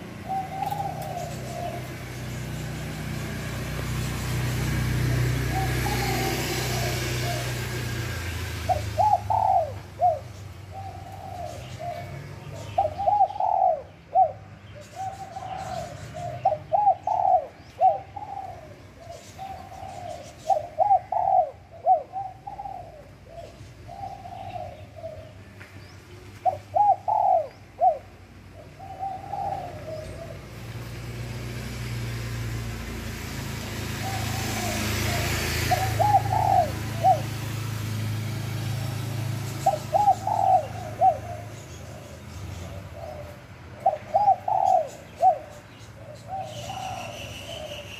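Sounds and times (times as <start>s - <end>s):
dove cooing: 0.0s - 32.8s, 33.4s - 47.9s.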